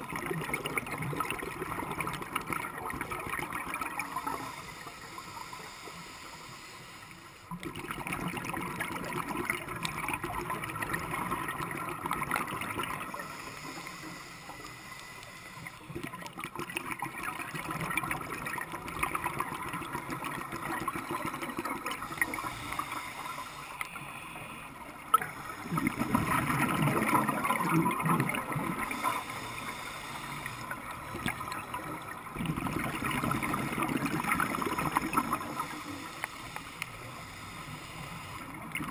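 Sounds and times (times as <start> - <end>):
diver's exhaled bubbles gurgling: 0.0 - 4.5, 7.5 - 13.4, 15.9 - 22.8, 25.0 - 29.4, 30.5 - 35.9
underwater water noise: 0.0 - 38.9.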